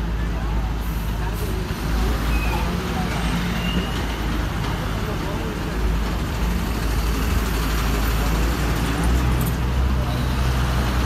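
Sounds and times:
heavy traffic rumble: 0:00.0 - 0:11.0
road and tyre noise: 0:00.0 - 0:11.0.

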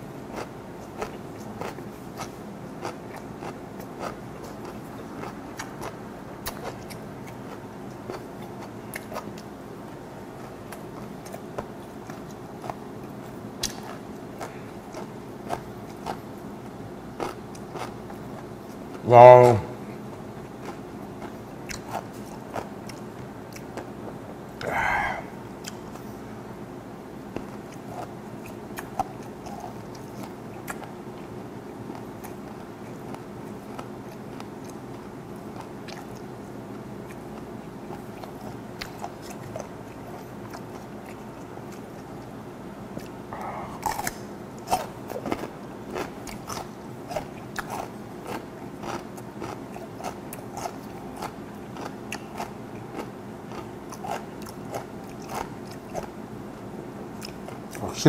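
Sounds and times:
steady low hum: 0:00.0 - 0:58.0
wet crunching chewing: 0:00.3 - 0:09.5, 0:10.4 - 0:16.4, 0:17.2 - 0:18.9, 0:43.0 - 0:56.2, 0:57.2 - 0:58.0.

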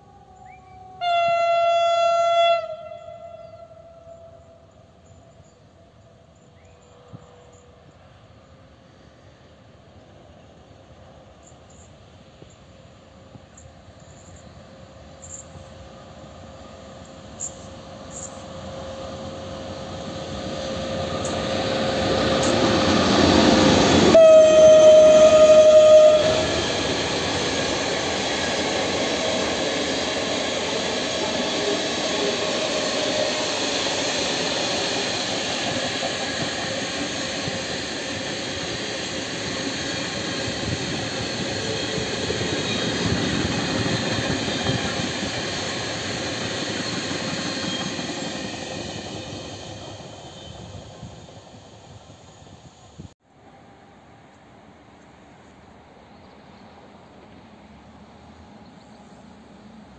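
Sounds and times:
train horn: 0:00.0 - 0:08.0, 0:23.6 - 0:26.9, 0:31.1 - 0:34.0
electric locomotive passing: 0:00.0 - 0:59.9.

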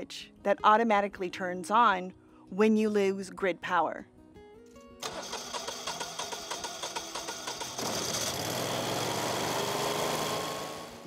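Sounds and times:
generator engine running: 0:05.0 - 0:11.0.

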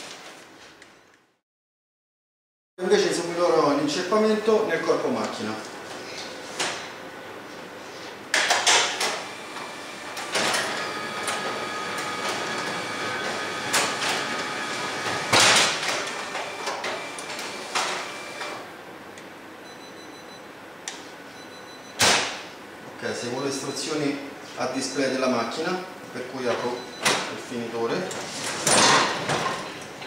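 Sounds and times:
copier motor whine: 0:09.0 - 0:18.8
copier clicks and clunks: 0:10.2 - 0:18.6.

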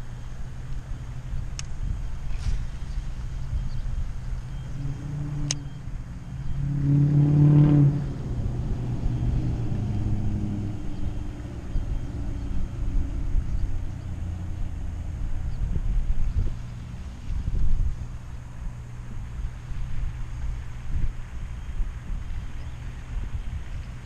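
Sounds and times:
wind rumble on microphone: 0:00.0 - 0:24.0
vehicle engine passing: 0:04.4 - 0:17.3.

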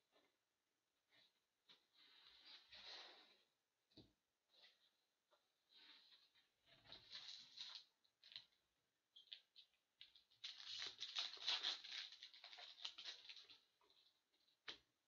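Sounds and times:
foil wrapper crinkling: 0:07.0 - 0:08.5, 0:10.4 - 0:13.6.

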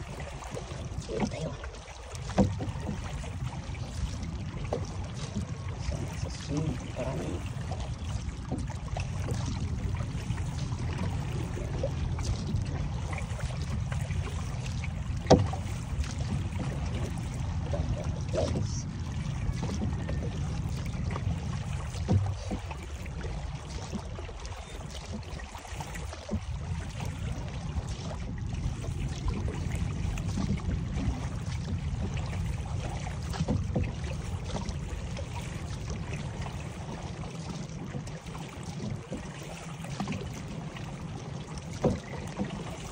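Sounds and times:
water lapping against canoe hull: 0:00.0 - 0:42.9
steady low rumble: 0:02.7 - 0:23.6.

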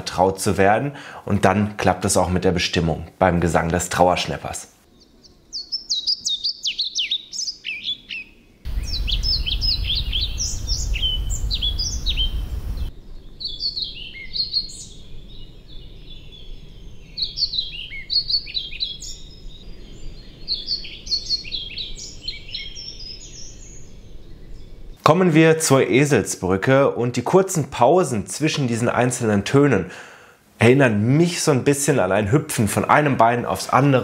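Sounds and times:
bird singing high notes: 0:05.6 - 0:15.8
low rumble and hiss: 0:08.7 - 0:13.4.

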